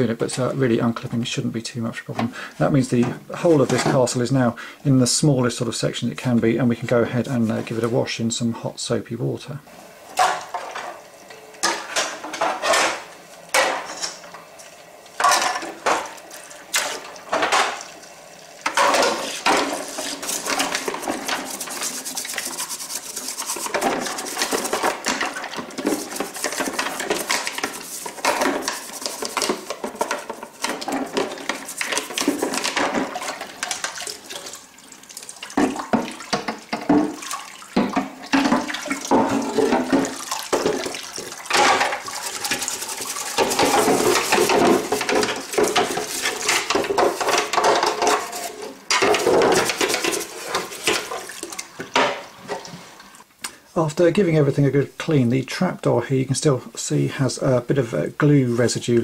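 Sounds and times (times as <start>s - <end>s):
tap water running into sink: 13.5s - 52.8s
brush scrubbing: 18.7s - 34.6s, 38.4s - 51.6s
plastic toys clattering: 38.3s - 51.3s.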